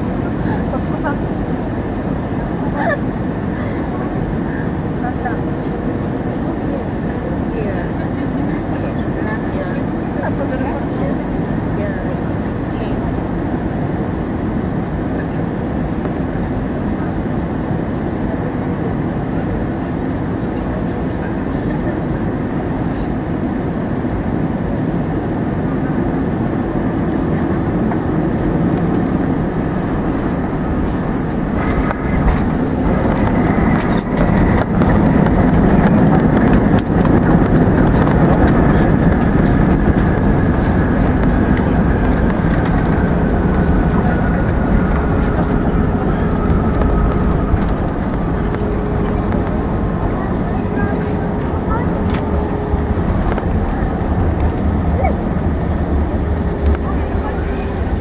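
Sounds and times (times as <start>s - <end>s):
airliner cabin noise: 0.0s - 58.0s
jet engines whining: 0.0s - 58.0s.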